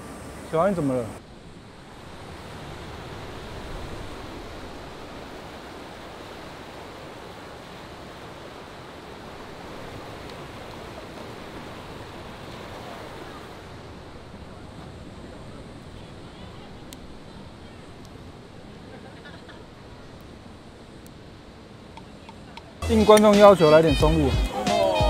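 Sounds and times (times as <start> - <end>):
water rushing over boulders: 1.8 - 18.9.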